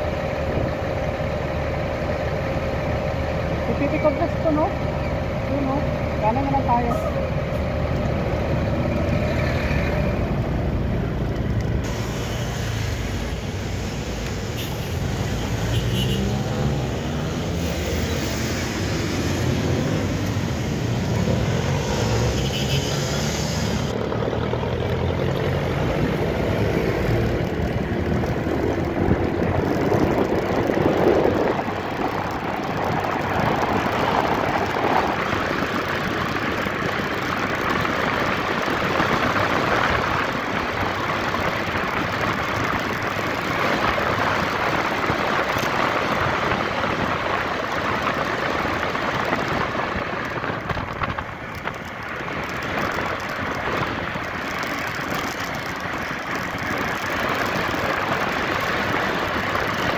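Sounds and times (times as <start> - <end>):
wind noise on microphone: 25.6 - 59.9.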